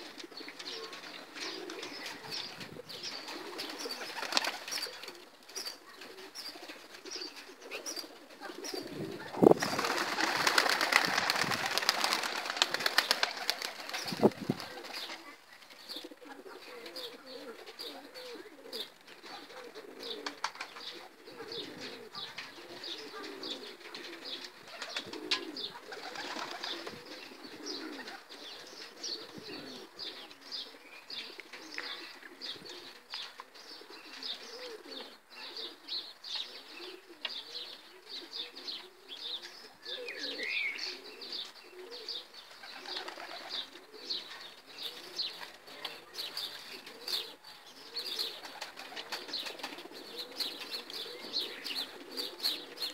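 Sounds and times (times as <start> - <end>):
pigeons cooing: 0.0 - 52.9
wing flaps: 9.3 - 15.2.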